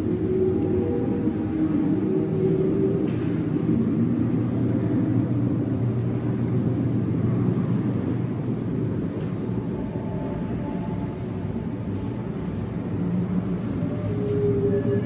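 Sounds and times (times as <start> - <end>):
low rumbling room hum: 0.0 - 15.0.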